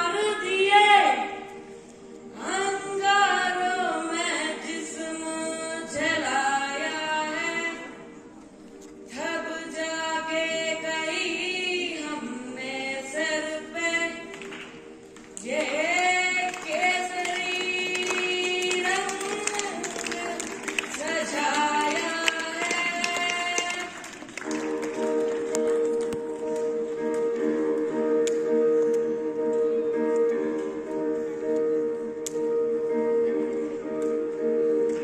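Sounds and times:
boy singing into a microphone: 0:00.0 - 0:01.5, 0:02.4 - 0:08.1.

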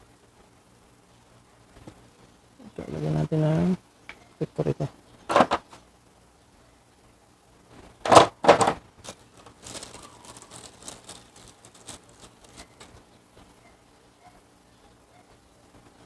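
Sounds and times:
plastic bag crinkling: 0:08.1 - 0:13.2.

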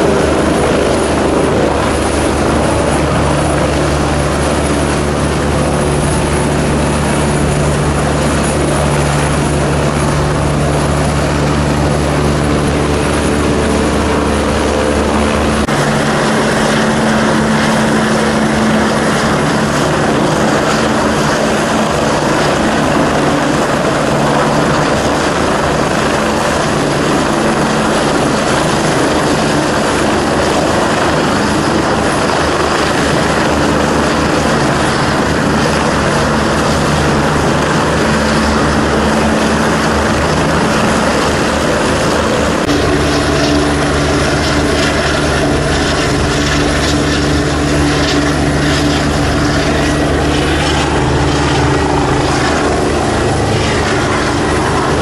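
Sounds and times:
helicopter rotor and engine: 0:00.0 - 0:55.0
high whine: 0:00.0 - 0:55.0.

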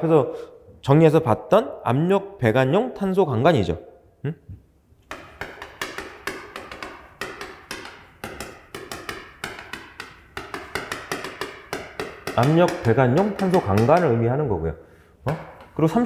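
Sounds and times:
chalk tapping on a blackboard: 0:05.0 - 0:14.4, 0:15.3 - 0:16.0.

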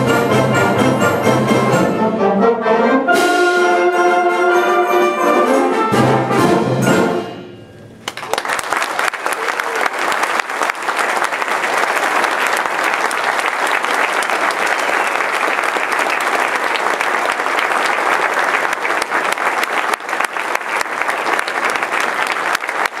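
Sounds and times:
audience applauding: 0:08.0 - 0:23.0.

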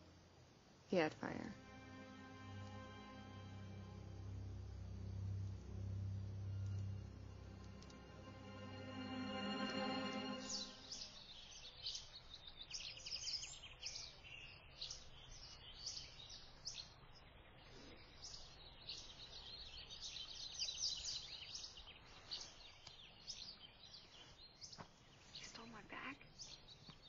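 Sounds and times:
faint low rumble: 0:00.0 - 0:11.0
small birds chirping: 0:06.2 - 0:27.0.

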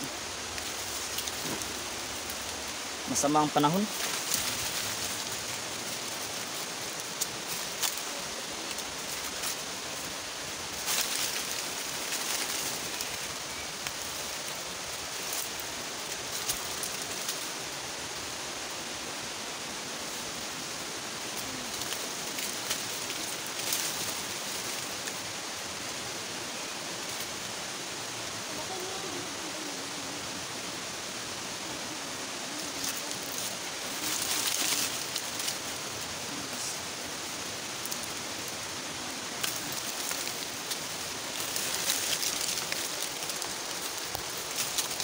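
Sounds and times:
footsteps on leaf litter: 0:00.0 - 0:17.8, 0:21.2 - 0:25.4, 0:32.6 - 0:45.0
rustling leaves: 0:00.0 - 0:45.0
water rushing: 0:00.0 - 0:45.0.

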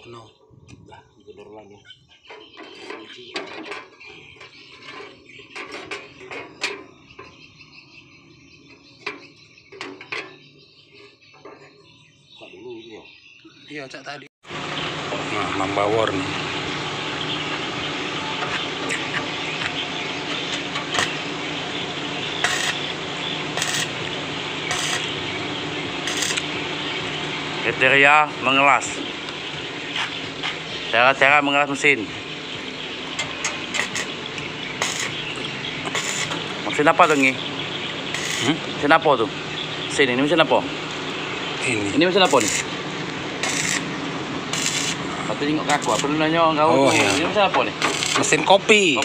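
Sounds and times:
sheet metal clinking and scraping: 0:02.3 - 0:07.4, 0:09.0 - 0:10.5, 0:17.5 - 0:21.3, 0:22.3 - 0:22.9, 0:23.6 - 0:25.2, 0:26.0 - 0:26.5, 0:33.0 - 0:37.4, 0:46.9 - 0:49.0
welding arc crackling: 0:16.2 - 0:46.3, 0:46.9 - 0:49.0
sharp metallic knocks: 0:28.8 - 0:39.2.

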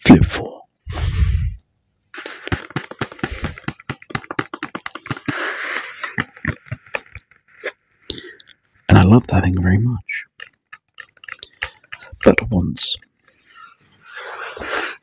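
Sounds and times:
fingernails tapping on cardboard: 0:02.2 - 0:07.1
scratchy rubbing on cardboard: 0:02.2 - 0:07.3.

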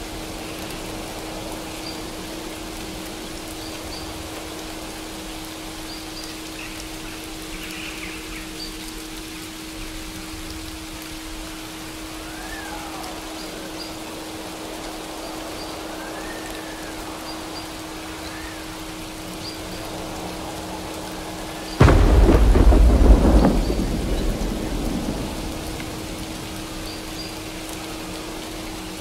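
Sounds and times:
steady rain: 0:00.0 - 0:29.0
thunderclap rumbling: 0:19.6 - 0:28.4.

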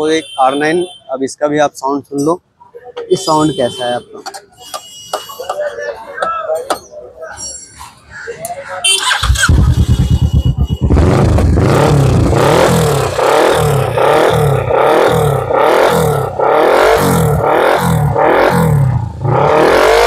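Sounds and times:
motorcycle engine revving: 0:08.9 - 0:20.0.

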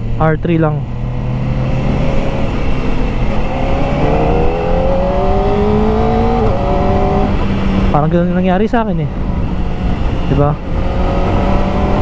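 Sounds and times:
motorcycle engine accelerating: 0:00.0 - 0:12.0
rush of wind: 0:00.0 - 0:12.0.

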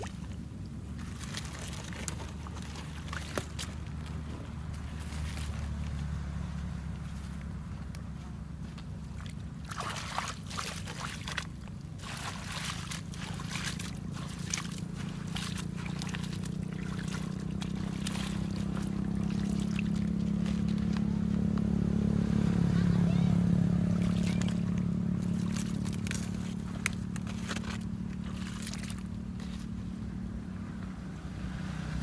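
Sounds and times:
hands squelching through wet mud: 0:00.0 - 0:30.8
steady low hum: 0:00.0 - 0:32.0
wet splats: 0:01.0 - 0:05.8, 0:09.0 - 0:21.7, 0:23.8 - 0:29.7.

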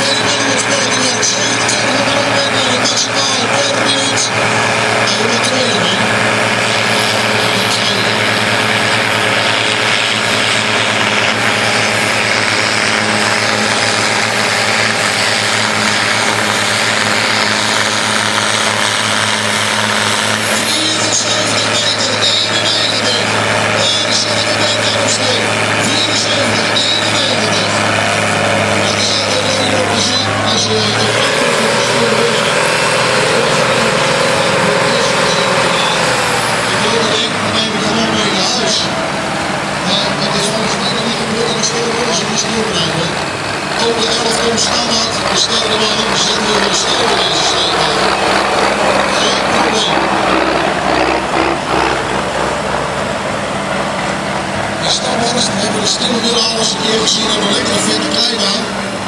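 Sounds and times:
tractor engine running loud: 0:00.0 - 0:59.0.

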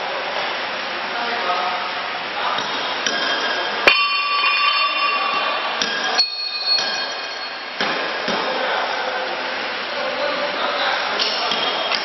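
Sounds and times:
metal parts clanking and ringing: 0:03.1 - 0:07.7.

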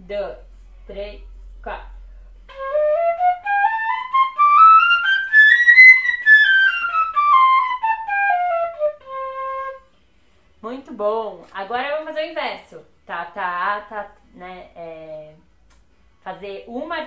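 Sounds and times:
fife playing fast scales: 0:00.8 - 0:09.8.

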